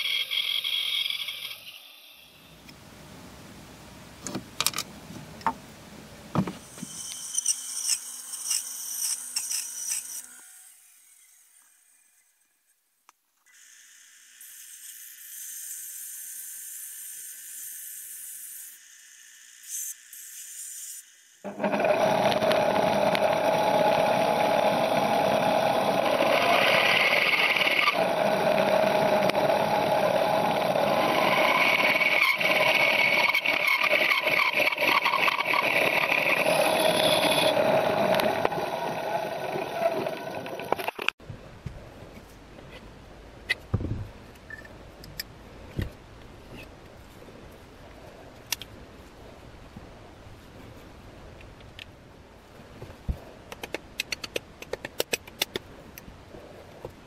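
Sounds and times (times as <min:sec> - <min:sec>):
power tool grinding: 0:21.5 - 0:41.2.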